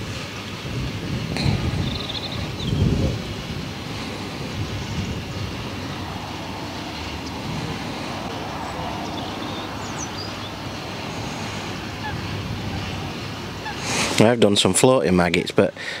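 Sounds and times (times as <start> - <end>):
wind rumbling on microphone: 0.0 - 15.6
faint bird chirps: 1.7 - 3.0.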